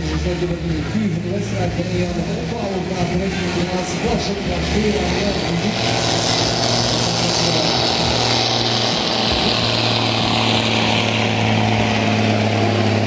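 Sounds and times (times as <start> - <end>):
truck diesel engine droning: 0.0 - 13.0.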